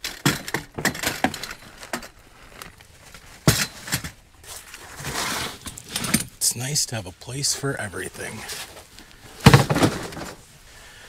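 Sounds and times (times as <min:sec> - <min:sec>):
scraping and rustling: 0:00.1 - 0:06.4, 0:08.2 - 0:10.5.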